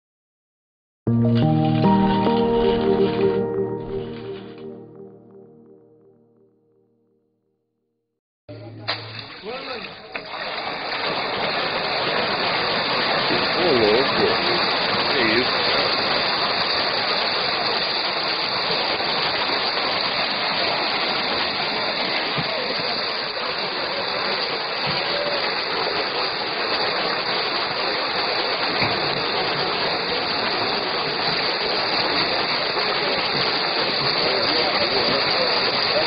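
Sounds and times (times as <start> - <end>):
water churning and splashing: 8.9 - 36.0.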